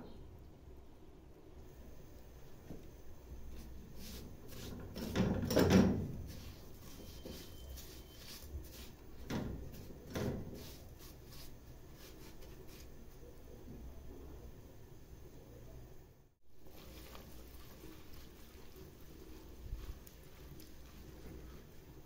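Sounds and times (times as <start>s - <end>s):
spatula scraping metal pot: 3.9s - 11.6s.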